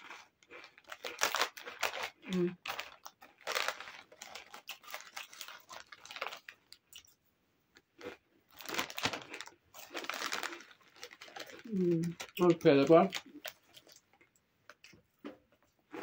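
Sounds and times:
chips crunching as chewed: 0.0 - 7.2, 7.8 - 16.0
plastic bag crinkling: 0.4 - 7.1, 8.5 - 14.2.

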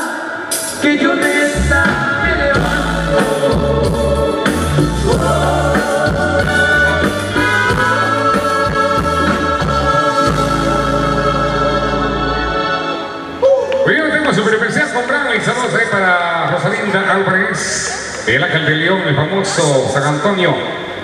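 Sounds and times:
person singing: 0.0 - 13.8
live band dance music: 0.0 - 16.2
heavy bass line: 0.8 - 14.5.

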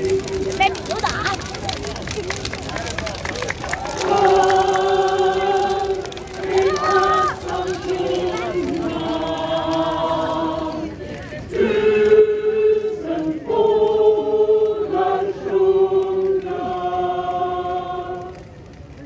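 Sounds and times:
mixed choir singing: 0.0 - 0.6, 3.9 - 18.4.

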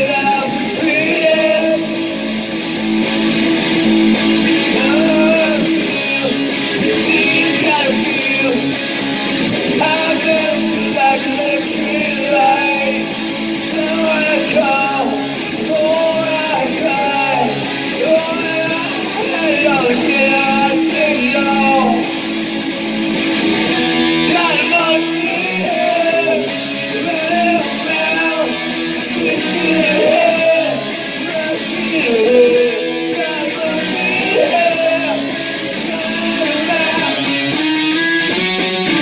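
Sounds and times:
man singing: 0.0 - 2.5, 4.3 - 8.9, 9.6 - 22.6, 23.8 - 39.0
strummed guitar: 0.0 - 39.0.

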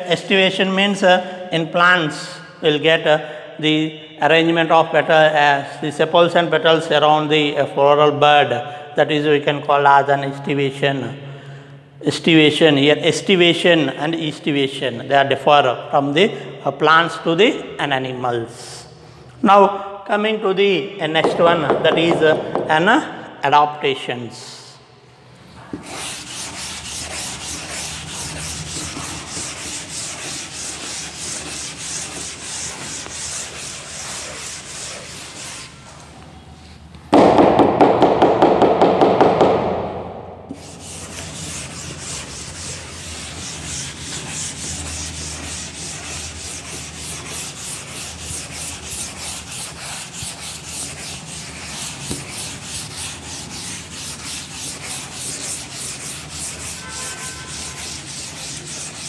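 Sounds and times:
duster rubbing on chalkboard: 21.2 - 22.7, 25.6 - 36.2, 40.5 - 59.0.

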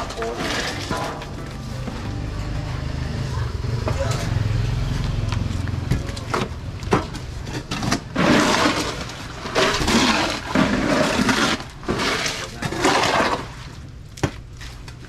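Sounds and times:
wet concrete pouring: 0.0 - 1.3, 7.6 - 13.9.

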